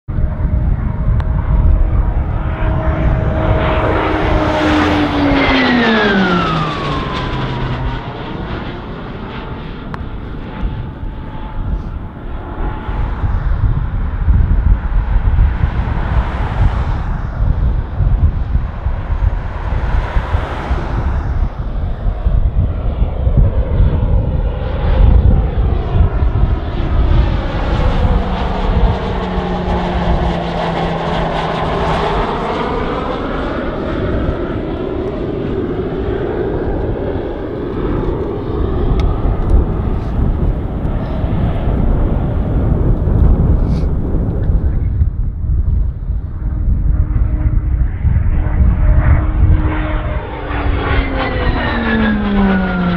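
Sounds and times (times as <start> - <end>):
turboprop aircraft droning: 0.1 - 52.9
sweeping phasing whoosh: 0.8 - 23.3.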